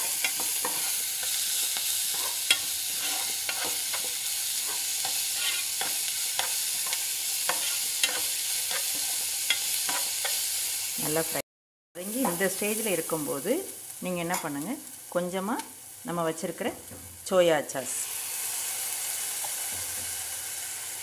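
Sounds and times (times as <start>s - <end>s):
utensil scraping against pan: 0.0s - 10.4s
vegetables sizzling in hot oil: 0.0s - 11.4s, 12.0s - 21.0s.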